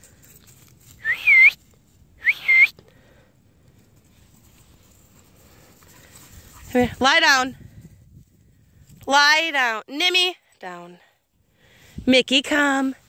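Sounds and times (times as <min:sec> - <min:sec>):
short whistles calling dogs: 0:01.0 - 0:01.6, 0:02.2 - 0:02.8.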